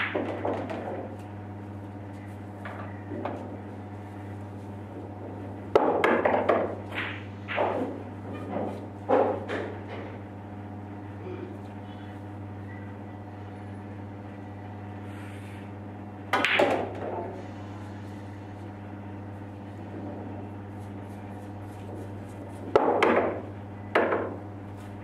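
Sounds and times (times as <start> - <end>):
pool balls clacking: 0.0 - 1.3, 2.6 - 3.8, 4.8 - 10.2, 16.2 - 17.5, 22.1 - 24.5
steady low hum: 0.0 - 25.0.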